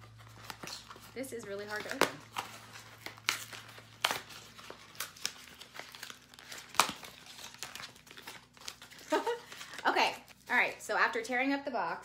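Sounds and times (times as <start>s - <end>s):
cardboard carton being torn: 1.8s - 9.8s.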